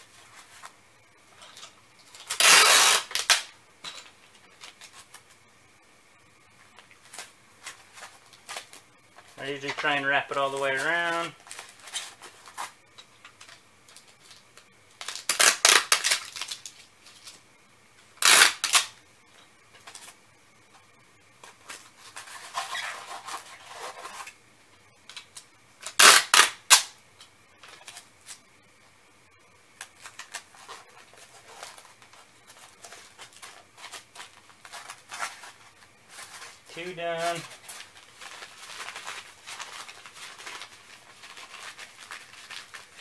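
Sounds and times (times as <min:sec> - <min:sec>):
packing tape ripping: 0:01.6 - 0:03.6, 0:15.0 - 0:17.4, 0:18.2 - 0:19.0, 0:22.2 - 0:24.4, 0:25.8 - 0:27.0, 0:32.8 - 0:43.0
cardboard and paper handling: 0:29.9 - 0:43.0.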